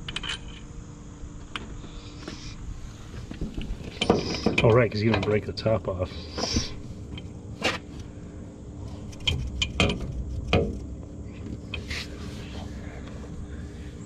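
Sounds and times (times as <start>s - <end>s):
faint low hum: 0.0s - 14.0s
light metallic clicks and knocks: 9.1s - 11.8s.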